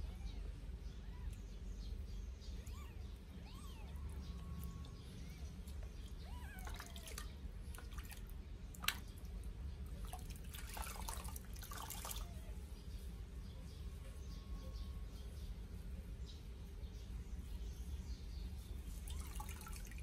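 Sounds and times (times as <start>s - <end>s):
water splashing in a basin: 6.0s - 12.3s, 19.0s - 20.0s.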